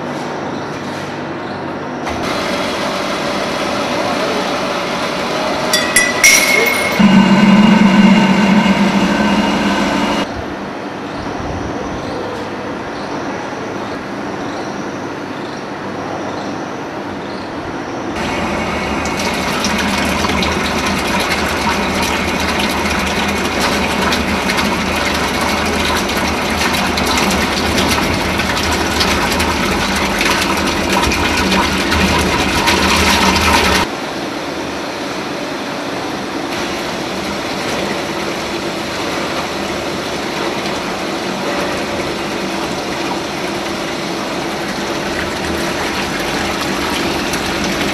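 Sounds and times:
oil-pressing machinery running: 0.0s - 11.0s, 17.6s - 47.9s
oil pouring from a pipe: 18.2s - 33.9s, 36.5s - 47.9s.

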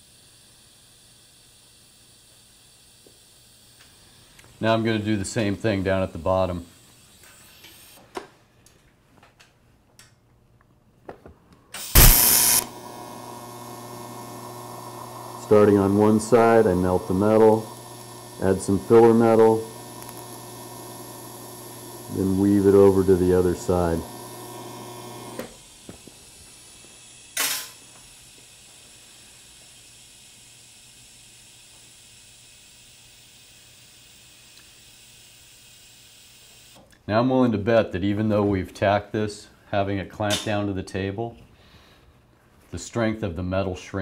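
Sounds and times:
welding arc crackling hiss: 0.0s - 8.0s, 11.8s - 36.8s
welding arc electric hum: 0.0s - 8.0s, 11.8s - 36.8s
welder switch click: 11.8s - 12.8s, 19.3s - 20.5s.

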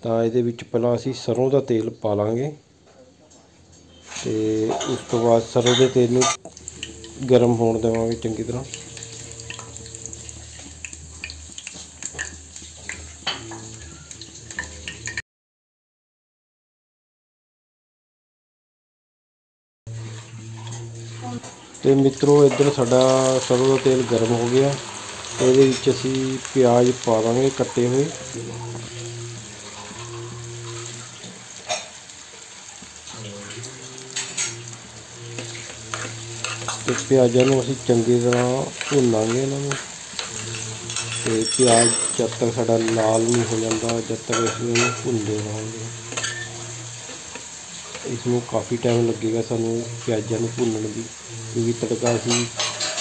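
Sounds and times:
onions sizzling in oil: 3.9s - 15.2s, 19.9s - 53.0s
food simmering hiss: 6.4s - 15.2s, 19.9s - 53.0s
ladle clinking and scraping pot: 35.3s - 48.1s, 52.1s - 53.0s.

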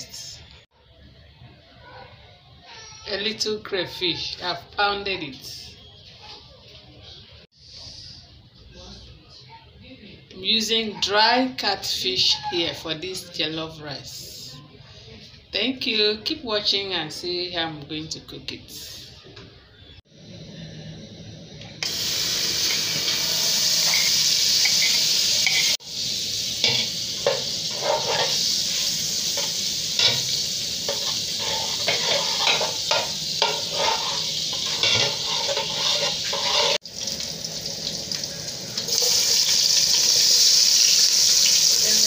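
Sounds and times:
butter sizzling in a pot: 21.8s - 42.0s
spatula scraping a pot: 23.0s - 25.8s, 26.6s - 36.8s.

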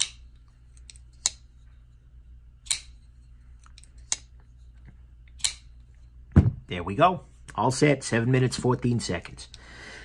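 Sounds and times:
folding knife blade clicking: 2.6s - 3.0s, 5.3s - 5.7s.

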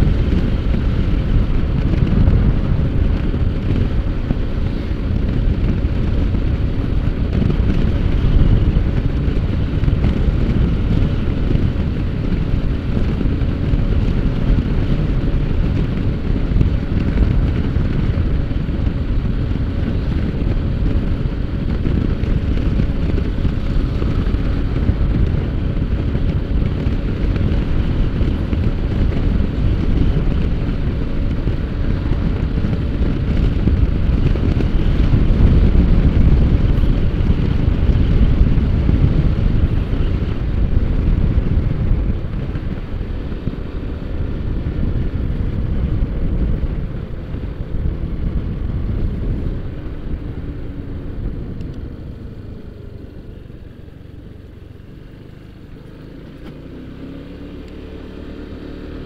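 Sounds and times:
scooter engine running: 0.0s - 59.0s
wind rushing over microphone: 0.0s - 59.0s.

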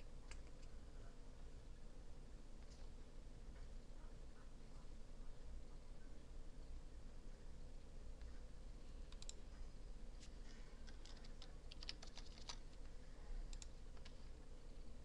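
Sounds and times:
low steady hum: 0.0s - 15.0s
typing on a keyboard: 9.1s - 9.4s, 10.8s - 12.7s.

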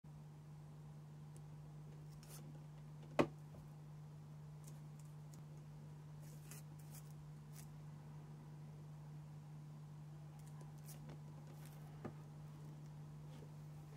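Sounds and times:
steady low hum: 0.1s - 13.9s.

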